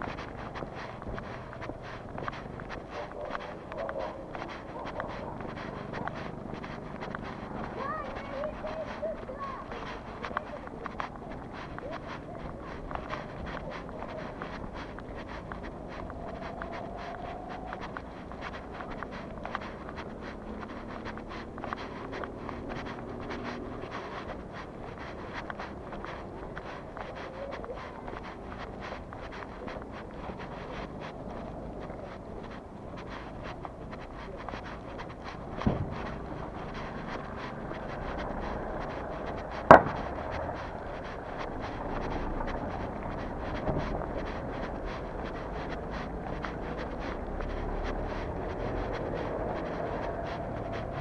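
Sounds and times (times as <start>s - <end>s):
footsteps crunching outdoors: 0.0s - 51.0s
low background rumble: 0.0s - 51.0s.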